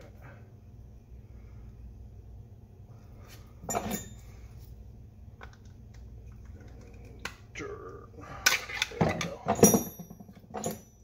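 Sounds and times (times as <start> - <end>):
metal parts and tools clinking: 3.6 - 4.3, 8.4 - 11.0.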